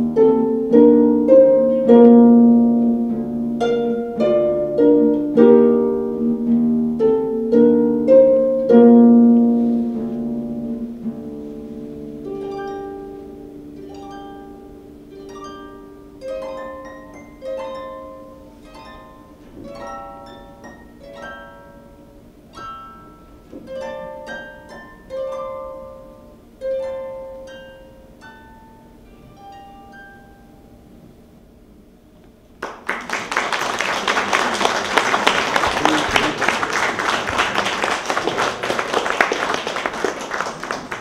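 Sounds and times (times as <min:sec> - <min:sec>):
harp plucked notes: 0:00.0 - 0:31.3
audience applause: 0:32.6 - 0:41.0.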